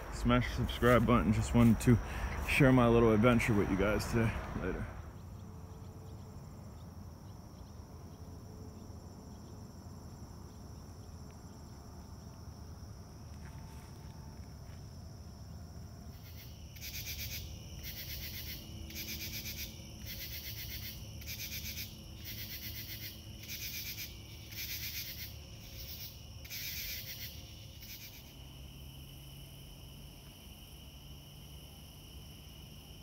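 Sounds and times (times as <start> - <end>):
cricket trill: 0.0 - 33.0
pulsed insect call: 0.0 - 33.0.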